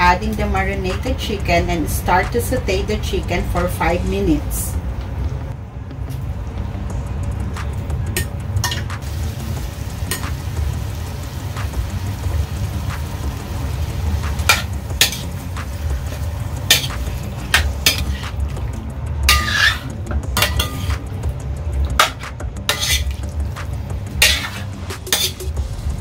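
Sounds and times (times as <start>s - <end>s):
chicken sizzling in a pan: 9.0s - 18.3s
metal spatula knocking a pan: 14.4s - 15.3s, 16.7s - 18.2s, 19.3s - 21.0s, 22.0s - 23.1s, 24.2s - 25.6s.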